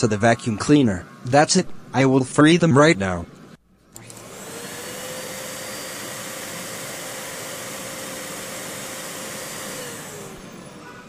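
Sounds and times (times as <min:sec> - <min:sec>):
vacuum cleaner whine: 0:03.9 - 0:11.0.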